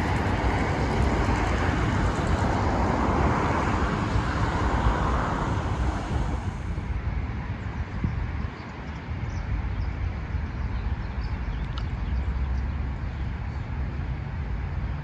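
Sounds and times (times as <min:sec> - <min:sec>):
vehicle passing: 0:00.0 - 0:07.0
steady low rumble: 0:00.0 - 0:15.0
street traffic noise: 0:00.0 - 0:15.0.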